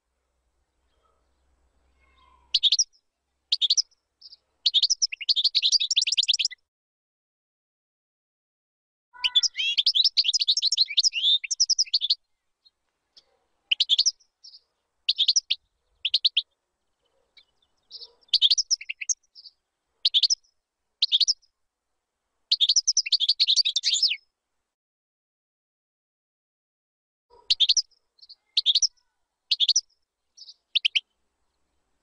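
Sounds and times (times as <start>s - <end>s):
bird twittering song: 0.6s - 6.6s, 9.2s - 21.5s, 22.5s - 24.2s, 27.3s - 31.6s.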